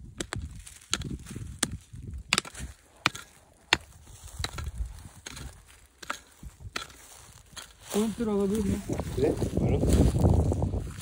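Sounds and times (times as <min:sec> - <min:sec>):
hoe chopping hard soil: 0:00.0 - 0:07.8.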